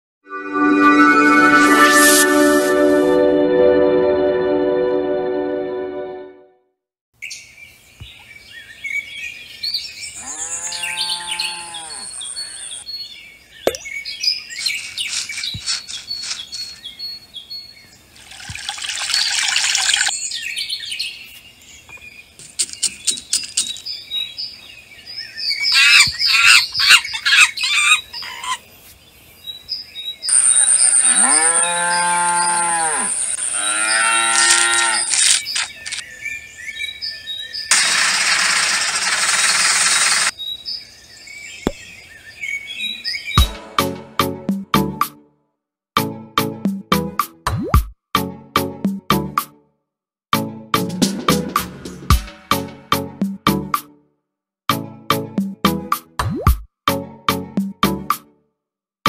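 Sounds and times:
birds chirping: 7.2s - 18.1s, 19.0s - 37.9s
cow mooing: 10.2s - 12.2s, 31.1s - 35.1s.

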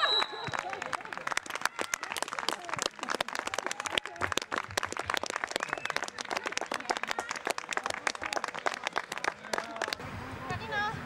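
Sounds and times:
people shouting and cheering: 0.0s - 4.9s
people clapping: 0.0s - 10.6s.

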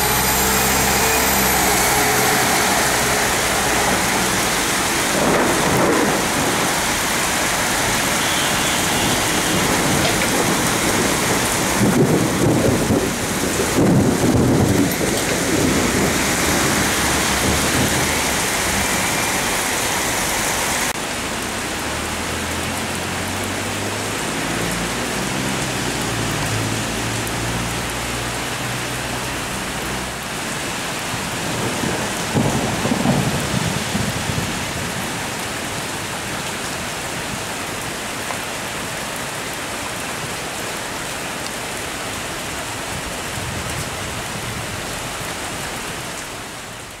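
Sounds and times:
thunder rumbling: 0.0s - 8.2s, 8.8s - 21.0s, 31.4s - 35.4s
rain hissing: 0.0s - 47.0s.

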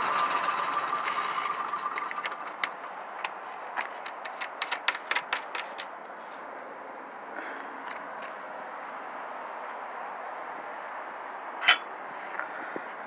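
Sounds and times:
generator engine whine: 0.0s - 4.0s.

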